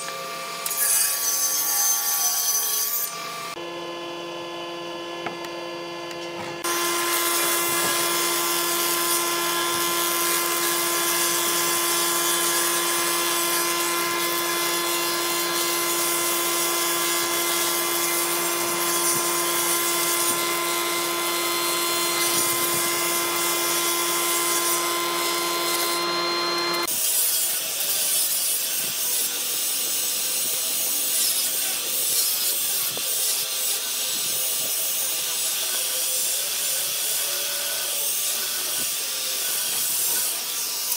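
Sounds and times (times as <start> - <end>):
woodworking planer humming: 3.0 - 27.0
grinder sanding wood: 4.8 - 40.9.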